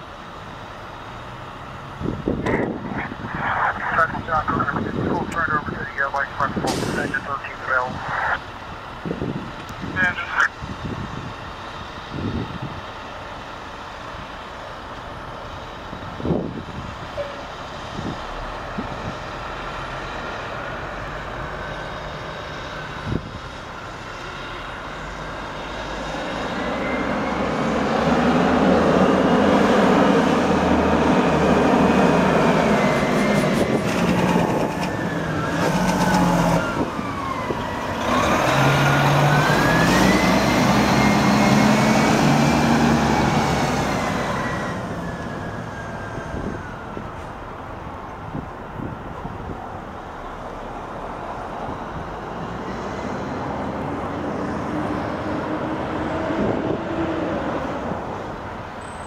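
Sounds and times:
fire truck diesel engines rumbling: 0.0s - 59.0s
faint siren wailing: 34.4s - 38.0s, 44.4s - 47.3s.

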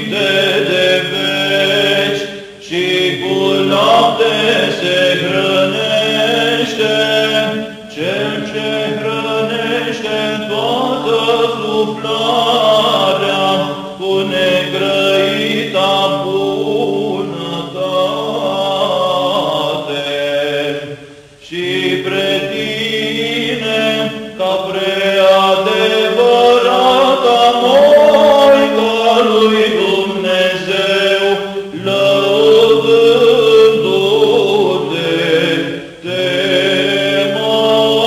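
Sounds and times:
melismatic chant singing: 0.0s - 38.0s
low held drone: 30.8s - 34.9s.

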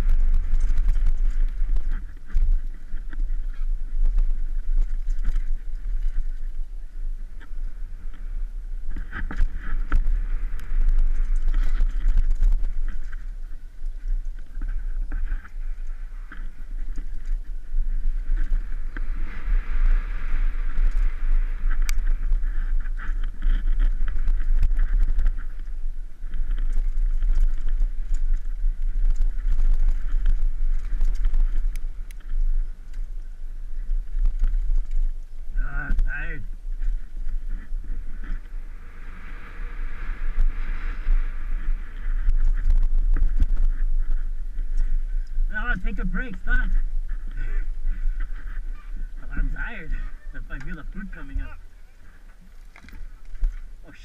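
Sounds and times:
wind rumble on microphone: 0.0s - 54.0s.

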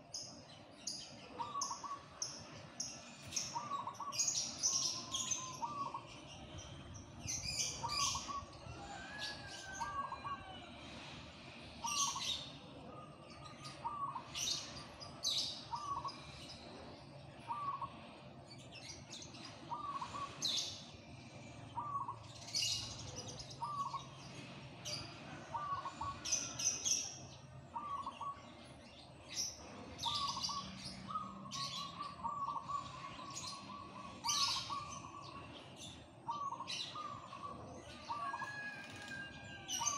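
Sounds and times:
dove cooing: 1.3s - 2.2s, 3.3s - 6.1s, 7.4s - 10.7s, 13.0s - 14.6s, 17.4s - 18.2s, 19.7s - 20.7s, 21.8s - 24.2s, 24.9s - 26.8s, 27.7s - 28.4s, 29.6s - 39.9s.

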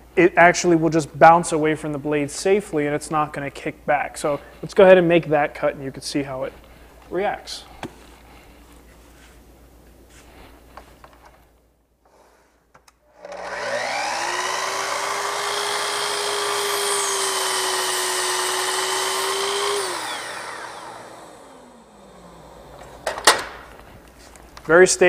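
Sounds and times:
miter saw whining: 13.1s - 23.1s.

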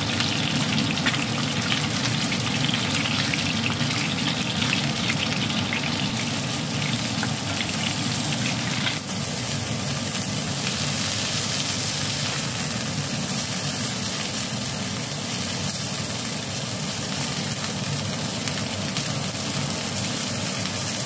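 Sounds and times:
chicken wings sizzling in oil: 0.0s - 21.0s.

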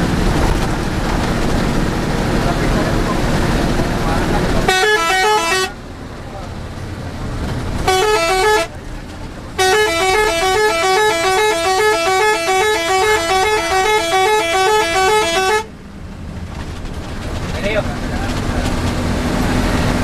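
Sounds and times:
bus engine and road noise: 0.0s - 20.0s
bus horn playing a tune: 4.6s - 5.9s, 7.8s - 8.8s, 9.5s - 15.7s.

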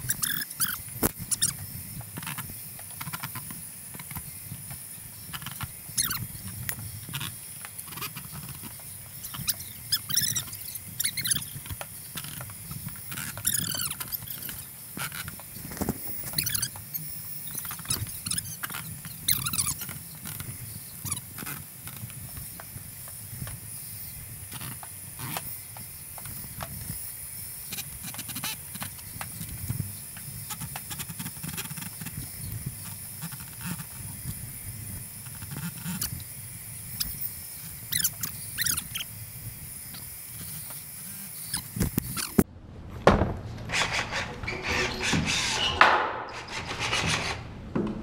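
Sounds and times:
metal squeaking on wood: 7.9s - 11.6s, 12.2s - 15.2s, 16.1s - 19.9s, 43.6s - 47.5s
steady shop hum: 40.5s - 48.0s
hand tools clicking and scraping wood: 43.6s - 48.0s.

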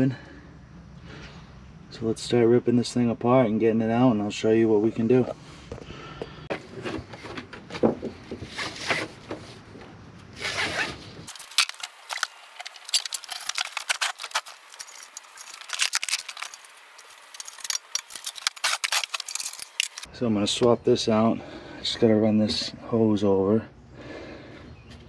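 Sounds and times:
strap webbing rustling and scraping: 10.3s - 20.1s.

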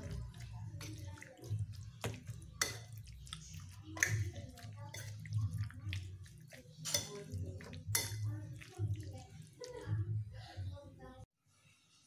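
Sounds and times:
wet squelching of meat: 0.0s - 10.1s
spoon clinking against bowl: 0.8s - 8.7s.

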